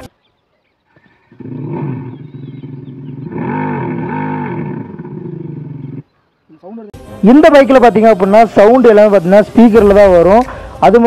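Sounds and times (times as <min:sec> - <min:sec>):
artificial motorcycle engine sound: 0:01.3 - 0:06.0.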